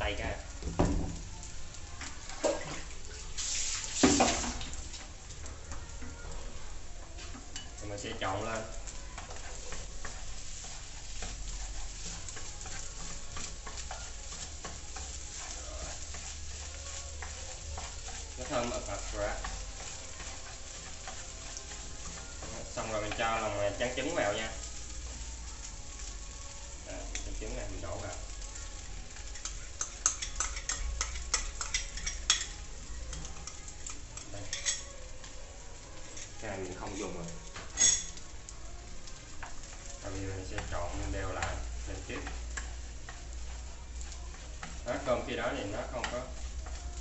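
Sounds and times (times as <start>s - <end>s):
rice sizzling in a frying pan: 0.0s - 47.0s
chopsticks scraping a pan: 7.4s - 25.2s, 26.8s - 35.4s, 36.0s - 38.3s, 39.1s - 47.0s.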